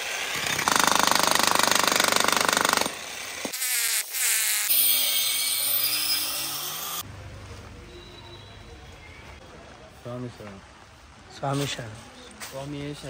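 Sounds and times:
demolition hammer chiselling asphalt: 0.0 - 3.6.

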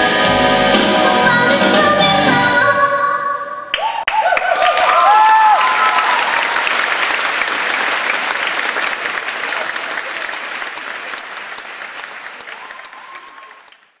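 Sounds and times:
audience applauding: 3.7 - 14.0.

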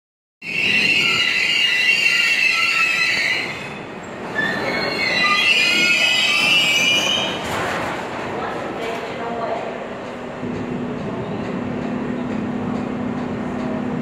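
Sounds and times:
train wheels squealing on rails: 0.4 - 7.6
rumble of rolling wheels: 3.4 - 14.0.

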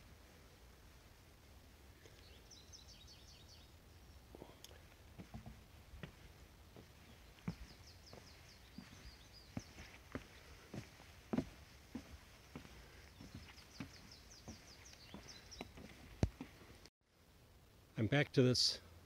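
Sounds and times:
small bird chirping: 2.1 - 4.3, 6.8 - 11.0, 11.9 - 16.7
footsteps on wooden boardwalk: 4.8 - 16.9.

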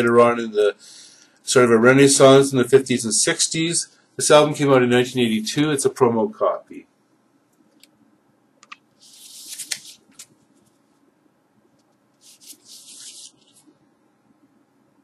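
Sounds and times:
cardboard sleeve rustling: 9.0 - 10.9, 12.2 - 13.7.

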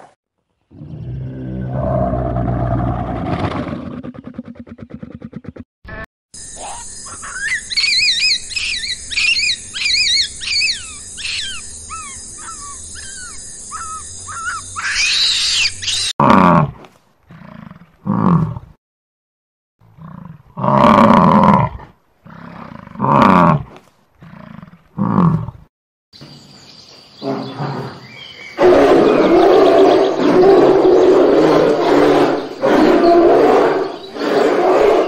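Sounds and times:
large animal roaring: 0.7 - 4.6, 28.6 - 35.0
bird whistling calls: 7.2 - 16.1.

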